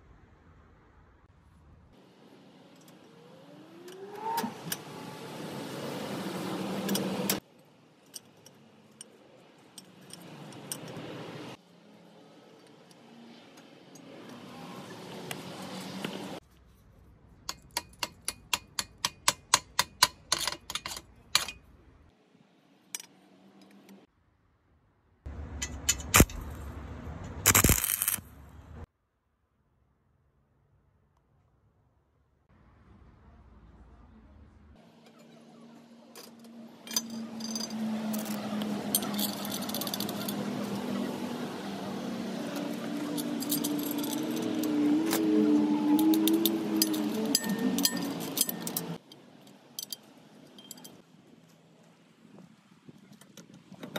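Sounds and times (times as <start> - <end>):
metal parts clinking and rattling: 6.9 - 11.2, 17.5 - 21.7, 36.1 - 41.0, 42.5 - 45.2, 45.9 - 51.0
sharp metallic clicks: 25.5 - 26.6, 27.2 - 28.3
chipping hammer tapping metal: 27.5 - 28.2.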